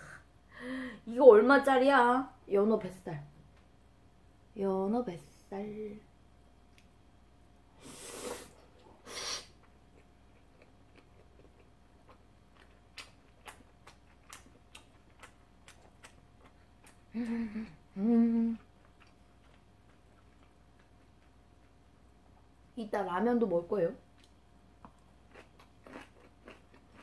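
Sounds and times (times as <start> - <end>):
closed-mouth humming: 7.7 - 21.9
wet chewing clicks: 9.6 - 17.1, 18.8 - 21.8.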